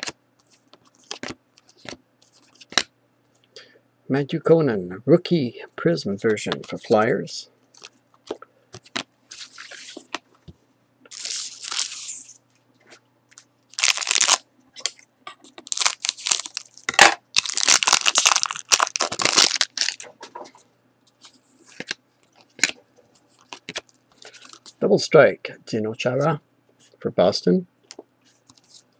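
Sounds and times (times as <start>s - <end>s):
foil wrapper crinkling and tearing: 11.1s - 12.3s, 13.7s - 14.9s, 15.6s - 20.1s.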